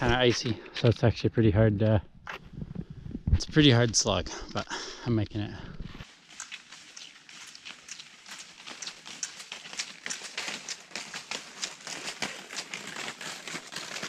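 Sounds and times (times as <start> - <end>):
skis scraping over icy snow: 6.0 - 14.0.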